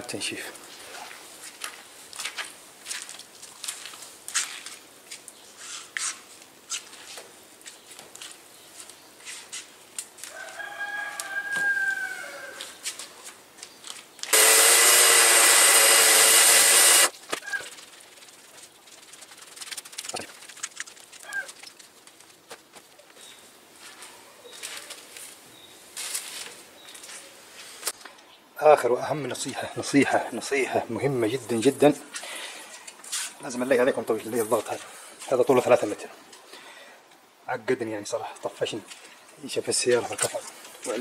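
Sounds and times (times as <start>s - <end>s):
rooster crowing: 10.2s - 12.8s.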